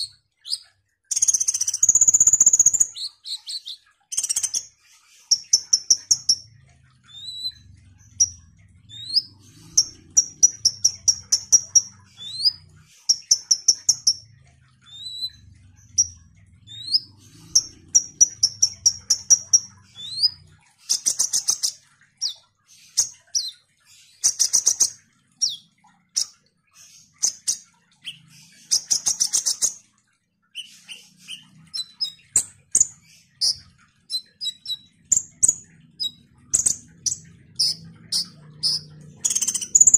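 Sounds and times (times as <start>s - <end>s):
sunbird singing: 5.3s - 22.4s.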